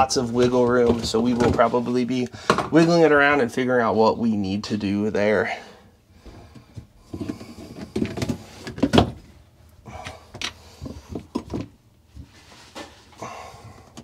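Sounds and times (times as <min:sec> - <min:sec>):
plastic pipes creaking and knocking: 0:00.0 - 0:03.1, 0:06.2 - 0:09.4, 0:10.0 - 0:14.0.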